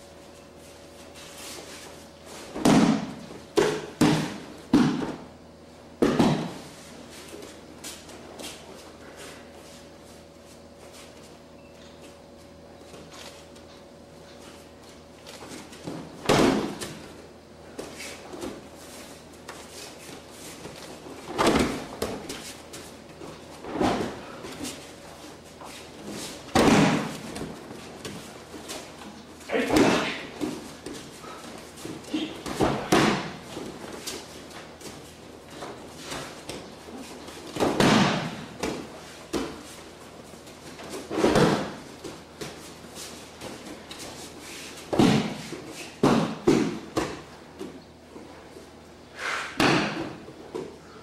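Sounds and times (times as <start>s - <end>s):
body slapping onto mat: 2.4s - 5.3s, 6.0s - 6.7s, 15.4s - 17.1s, 19.5s - 24.8s, 25.7s - 28.9s, 31.8s - 39.7s, 40.8s - 42.6s, 44.8s - 47.8s, 49.5s - 50.2s.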